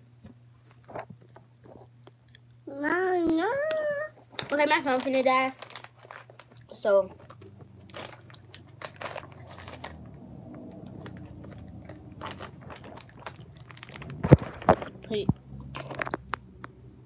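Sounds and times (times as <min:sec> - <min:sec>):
phone microphone handling noise: 0:14.0 - 0:16.3.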